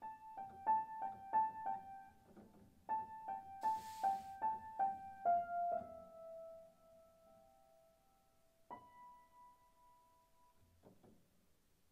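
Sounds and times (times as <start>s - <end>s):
piano notes: 0.0s - 8.0s
brief hiss: 3.6s - 4.5s.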